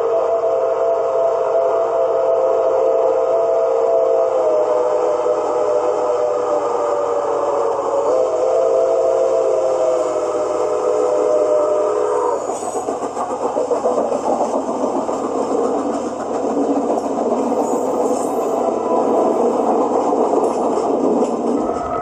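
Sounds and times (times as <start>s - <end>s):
model train horn chord: 0.0s - 6.4s
model train rolling rumble: 0.0s - 22.0s.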